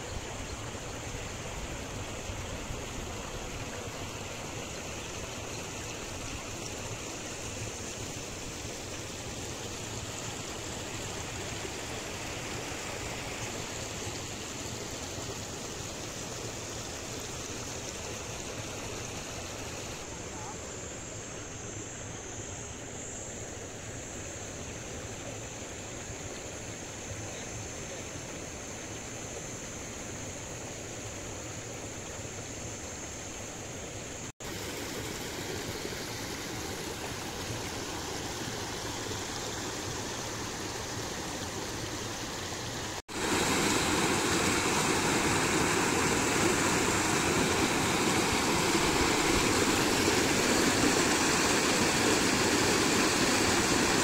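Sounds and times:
water rushing over waterfall: 34.4s - 54.0s.

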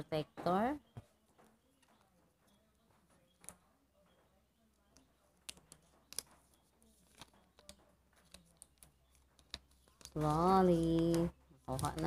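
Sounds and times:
plastic film crackling: 8.1s - 12.0s.

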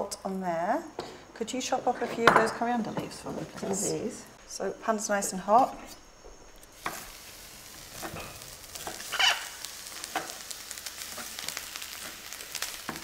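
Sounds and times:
squid sizzling in hot pan: 6.7s - 13.0s.

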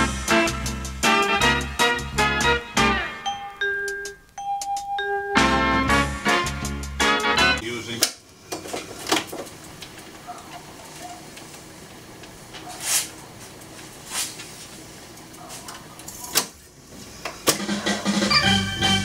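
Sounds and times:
tape swishes: 12.6s - 14.7s.

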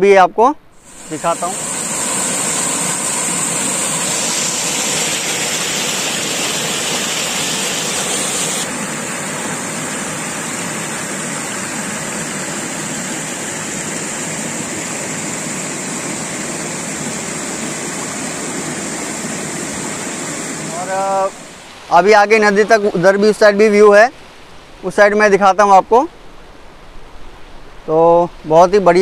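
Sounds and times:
river water rushing over rocks: 0.9s - 23.2s.

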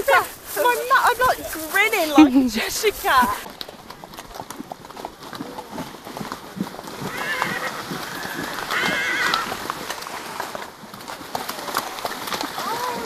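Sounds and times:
hooves on dirt track: 0.0s - 13.0s
horse whinnying: 6.9s - 10.0s.

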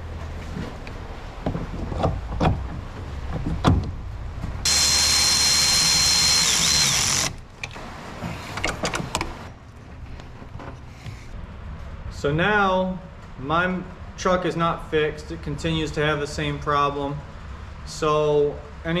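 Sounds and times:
power tool whining: 4.6s - 7.4s.

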